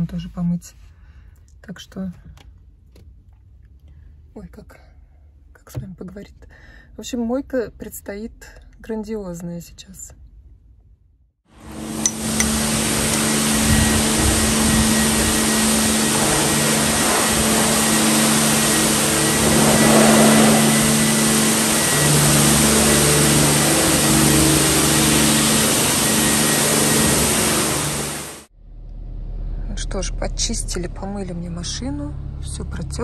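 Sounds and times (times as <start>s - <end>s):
car wash machinery rushing hiss: 11.6s - 28.5s
low hum: 11.6s - 33.0s.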